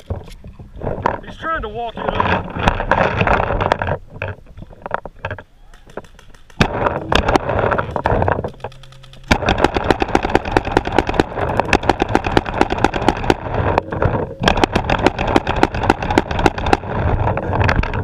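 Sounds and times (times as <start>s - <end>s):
paintball markers firing: 5.7s - 13.8s, 14.4s - 17.2s.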